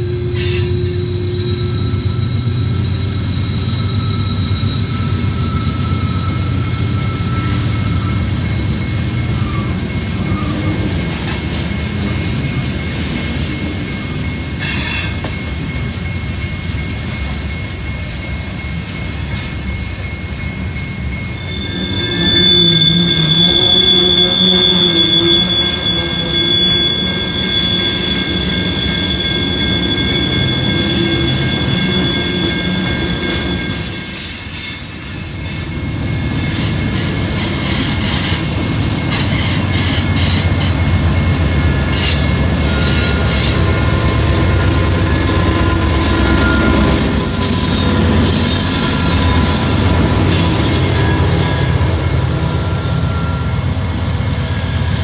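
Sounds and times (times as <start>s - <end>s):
high wheel squeal: 0.0s - 11.6s, 12.6s - 17.7s, 18.6s - 55.0s
train wheels rumbling on rail: 0.0s - 55.0s.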